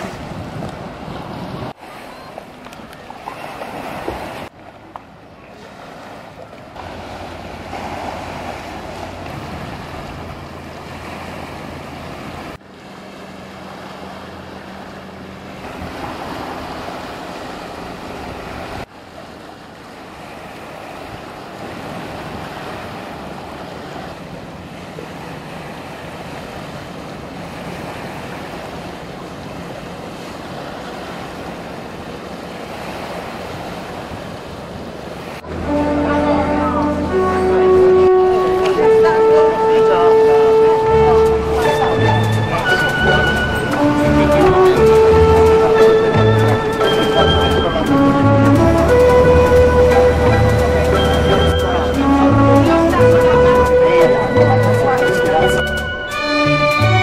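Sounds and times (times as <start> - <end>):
wind buffeting microphone: 0.0 - 1.8
boat engine droning: 0.0 - 57.0
rushing water: 0.0 - 57.0.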